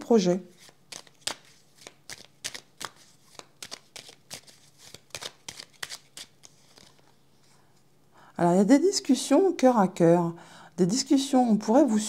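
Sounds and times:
cards being shuffled by hand: 0.5s - 7.2s.

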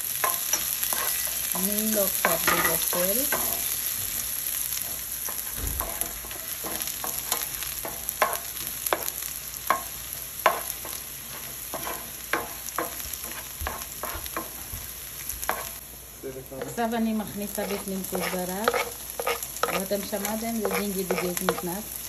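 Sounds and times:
ginger and chili sizzling in oil: 0.0s - 22.0s
wooden spatula scraping a pan: 0.2s - 8.4s, 10.5s - 14.8s, 16.6s - 21.8s.

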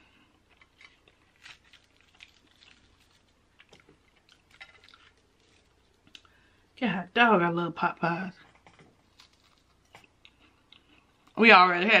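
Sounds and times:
person chewing food: 0.0s - 6.7s, 8.5s - 11.4s.

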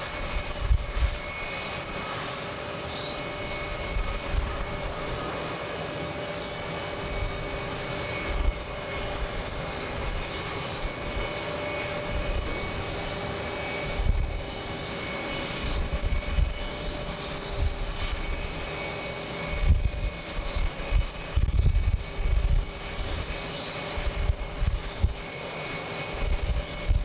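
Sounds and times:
wind rumble on microphone: 0.0s - 2.4s, 3.4s - 5.5s, 6.6s - 14.7s, 15.5s - 18.8s, 19.4s - 27.0s
jet engines at takeoff thrust: 0.0s - 27.0s.

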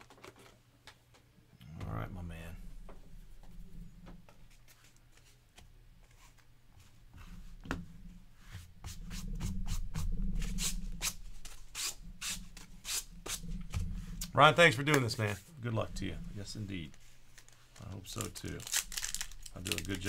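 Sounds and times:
hands rubbing card packs: 4.3s - 7.0s, 14.7s - 20.0s
packaging crinkles and clicks: 17.3s - 20.0s.

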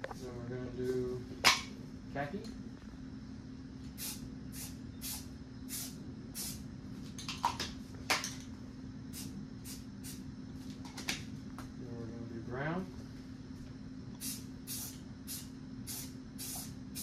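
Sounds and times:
spray paint hissing: 4.0s - 6.6s, 9.1s - 10.2s, 14.2s - 17.0s.

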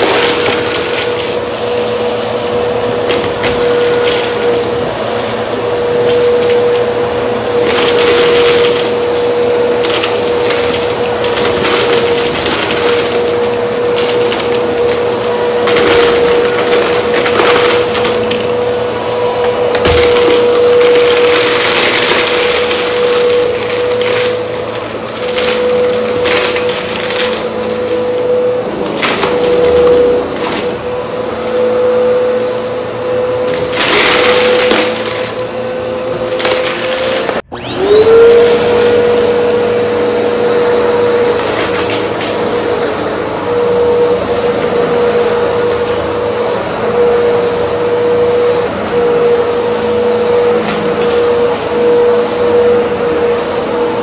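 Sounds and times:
vacuum cleaner motor whine: 0.0s - 54.0s
debris crackling into vacuum: 19.4s - 27.5s.

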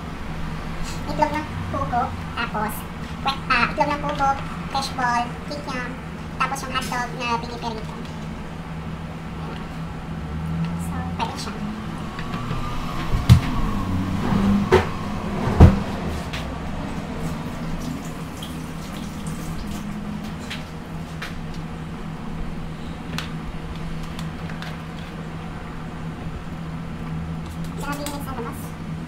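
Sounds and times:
steady low hum: 0.0s - 29.0s
water boiling in a pot: 17.2s - 21.1s.

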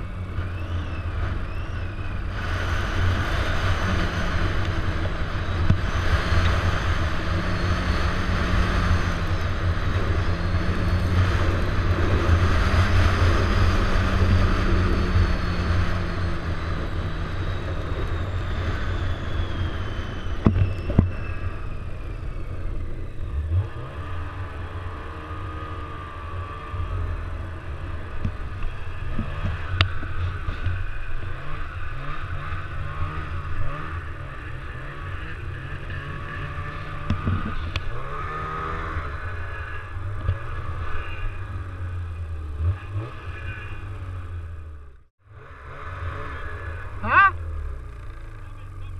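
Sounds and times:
snowmobile engine whine: 0.0s - 48.9s.

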